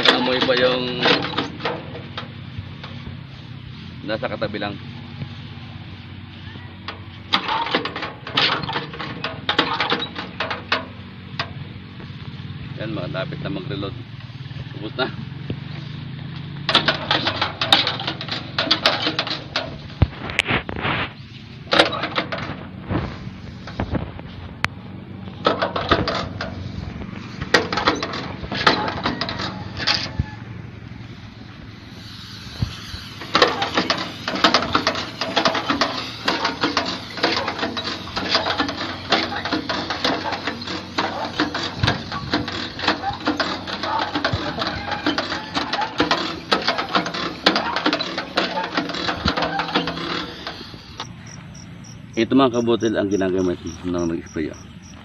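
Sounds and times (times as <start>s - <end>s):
sprayer pump clicking and rattling: 0.0s - 3.1s, 6.8s - 12.2s, 16.3s - 20.7s, 21.7s - 30.2s, 31.2s - 55.0s
steady spray hiss: 2.3s - 6.4s, 30.6s - 44.5s.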